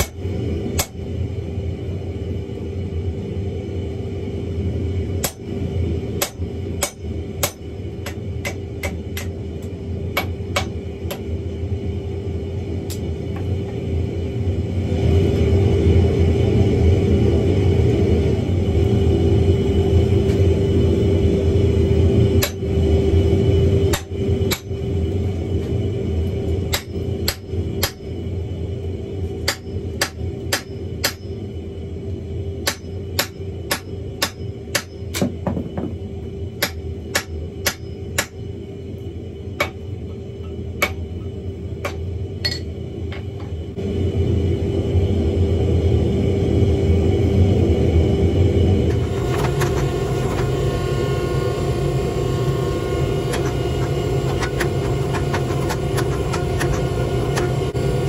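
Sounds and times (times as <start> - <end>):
hammer striking hot iron on anvil: 0.0 - 1.0, 5.2 - 5.5, 6.2 - 11.3, 22.4 - 22.6, 23.9 - 24.8, 26.7 - 28.1, 29.4 - 31.4, 32.6 - 35.9, 36.6 - 38.4, 39.6 - 39.8, 40.8 - 41.1, 41.8 - 42.7, 53.2 - 57.8
steady hum: 0.0 - 58.0.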